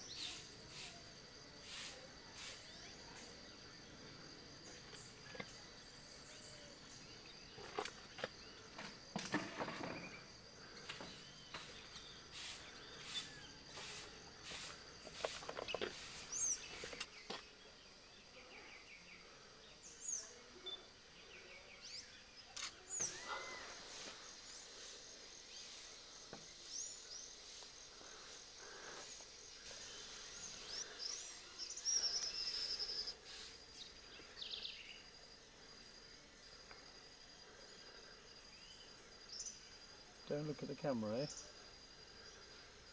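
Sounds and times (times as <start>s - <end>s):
high-pitched insect drone: 21.8s - 42.9s
loud bird call: 23.0s - 24.1s.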